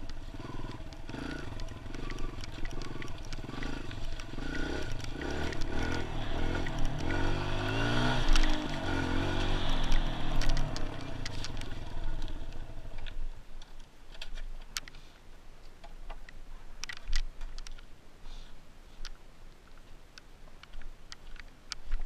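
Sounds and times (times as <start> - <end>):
sharp clicks: 0.0 - 13.2
dirt bike engine idling: 0.0 - 13.4.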